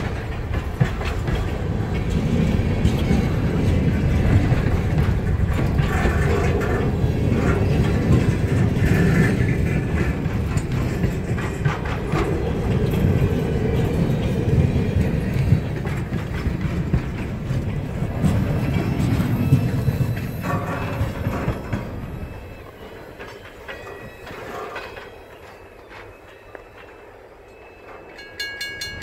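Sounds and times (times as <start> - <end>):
steel wheels rumbling on rails: 0.0 - 29.0
wheels clacking over rail joints: 0.0 - 29.0.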